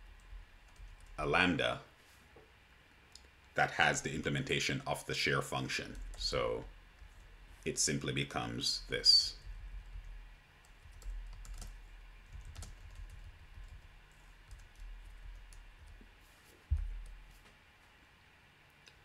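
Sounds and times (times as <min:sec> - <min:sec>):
low thump: 0:16.7 - 0:17.0.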